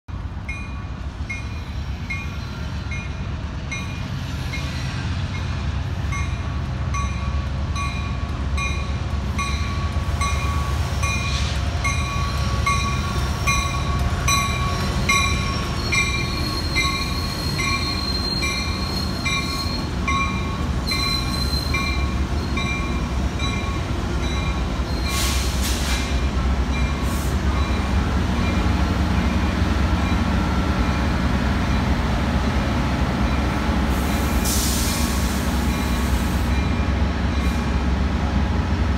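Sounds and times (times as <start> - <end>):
train wheels rumbling on rail: 0.1 - 38.9.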